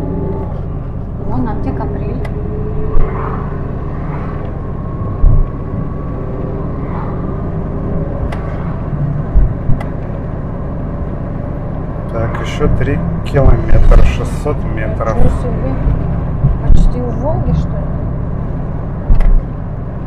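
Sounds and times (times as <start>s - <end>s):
car engine and road rumble: 0.0s - 20.0s
low thumps from the road: 4.0s - 6.0s, 8.2s - 10.4s, 15.1s - 17.7s, 19.0s - 19.6s.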